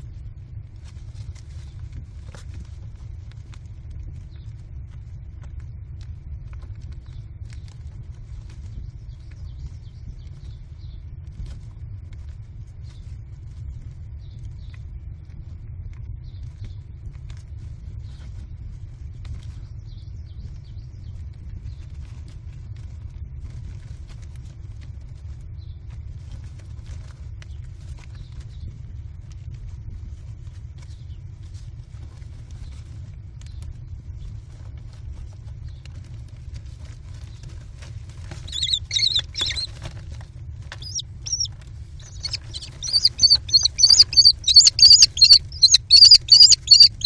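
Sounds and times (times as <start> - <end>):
steady low rumble: 0.0 - 47.0
birds scratching and rustling: 0.8 - 4.6, 21.4 - 47.0
birds scratching on wood chips: 34.2 - 47.0
faint high-pitched bird calls: 38.2 - 39.9, 40.7 - 47.0.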